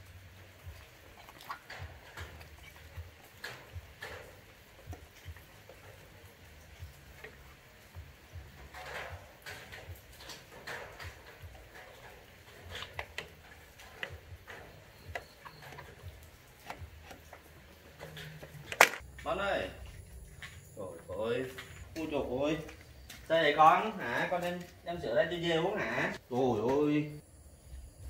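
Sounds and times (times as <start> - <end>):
small animals tapping and clicking: 0.3 - 19.3.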